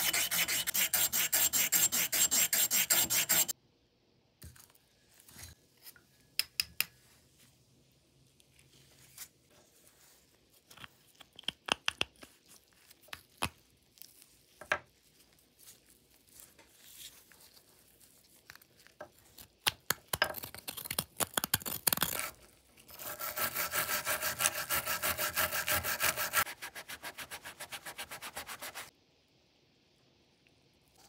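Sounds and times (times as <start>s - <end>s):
rapid scraping strokes: 0.0s - 3.5s, 22.9s - 28.9s.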